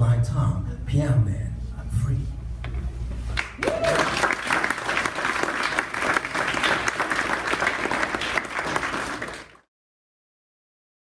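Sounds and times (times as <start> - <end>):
audience applauding: 3.4 - 9.7.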